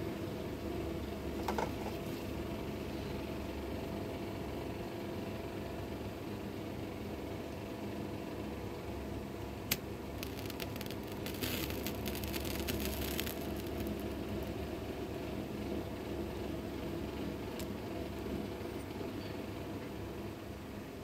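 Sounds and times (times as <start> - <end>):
steady low hum: 0.0 - 21.0
lighter gas hissing: 9.6 - 15.0
lighter clicking: 9.7 - 14.5.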